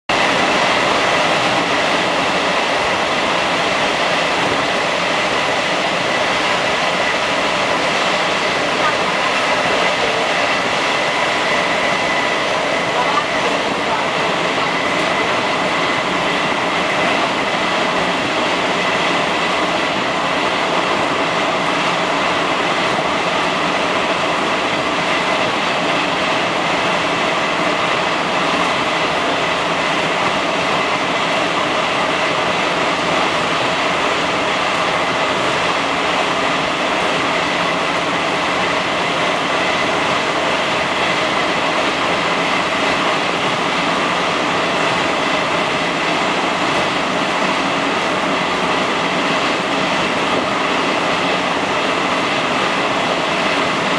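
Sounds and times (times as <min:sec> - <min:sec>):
train roaring through tunnel: 0:00.0 - 0:53.9.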